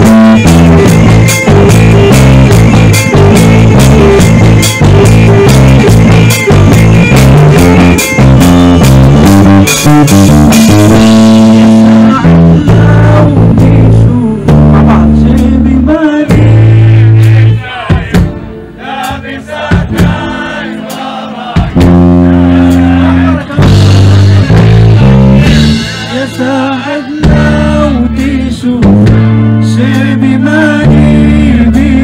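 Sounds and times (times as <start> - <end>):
drum kit: 0.0 - 32.0
electric guitar: 0.0 - 32.0
held bass notes: 0.0 - 32.0
man singing: 11.3 - 18.3, 25.4 - 32.0.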